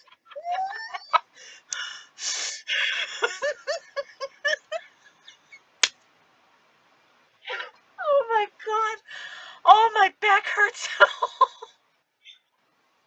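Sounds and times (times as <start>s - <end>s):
women laughing: 0.0s - 1.6s, 2.7s - 5.6s, 10.8s - 11.7s.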